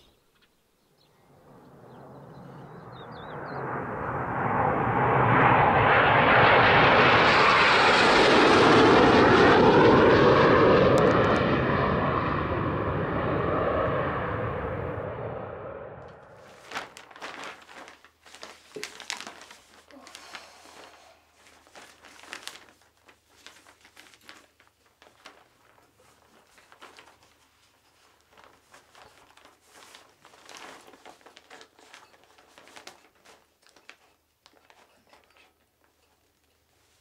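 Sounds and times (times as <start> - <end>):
paper rustling and crinkling: 16.3 - 37.0.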